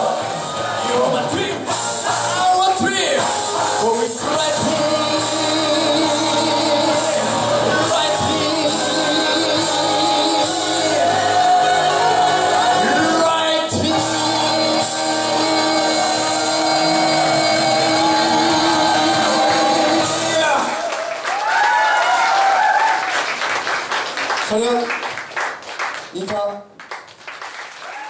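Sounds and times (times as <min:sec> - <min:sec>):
men singing rock and roll: 0:00.0 - 0:20.8
loud band playing: 0:00.0 - 0:20.9.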